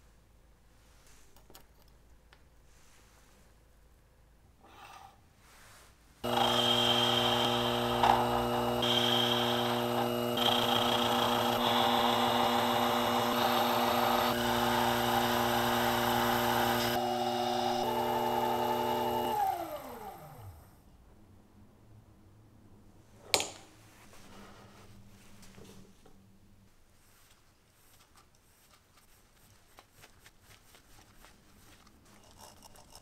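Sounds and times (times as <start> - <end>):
hissing metal cutting: 6.2 - 19.5
lathe motor hum: 6.2 - 20.6
motor winding down: 6.2 - 20.6.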